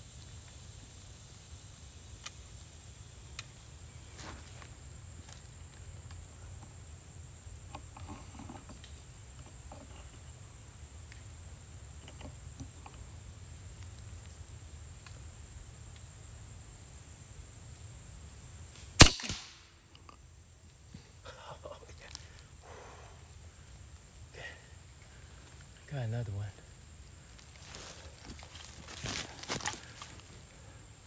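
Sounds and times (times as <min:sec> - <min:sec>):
faint woodland background: 0:00.0 - 0:31.0
air rifle shot: 0:19.0 - 0:19.7.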